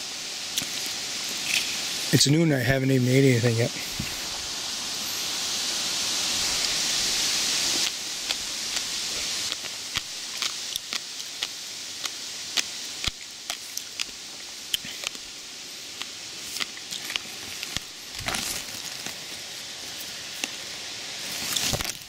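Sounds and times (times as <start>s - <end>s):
steady hiss: 0.0s - 22.0s
bramble stems snapping: 16.0s - 19.2s, 21.4s - 22.0s.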